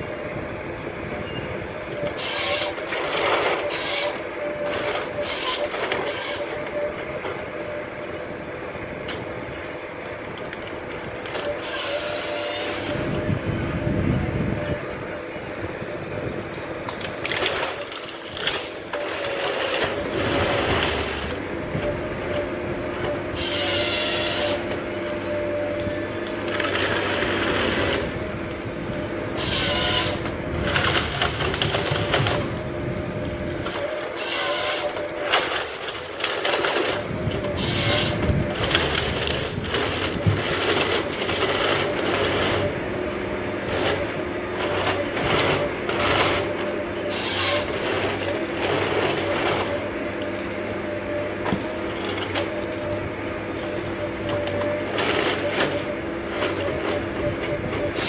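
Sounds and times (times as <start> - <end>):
harvester engine and hydraulics drone: 0.0 - 58.0
saw cutting through log: 2.2 - 4.2, 5.1 - 6.5, 11.6 - 13.0, 23.3 - 24.9, 26.2 - 28.2, 29.3 - 31.4, 33.5 - 49.8
clattering as branches are stripped: 43.6 - 52.8.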